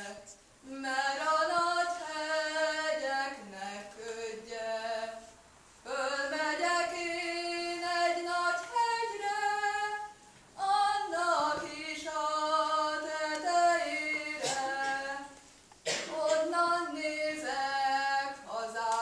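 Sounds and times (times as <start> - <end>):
young woman singing unaccompanied: 0.0 - 19.0.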